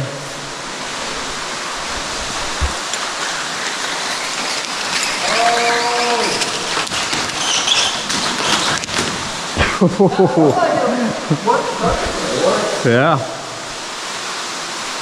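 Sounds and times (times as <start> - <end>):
underground waterfall rushing: 0.0 - 15.0.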